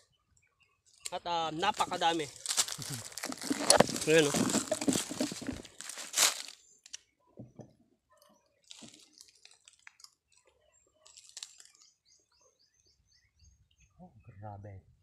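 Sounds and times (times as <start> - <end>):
plastic bag crinkling: 1.8 - 6.6, 8.6 - 10.1, 11.0 - 11.8.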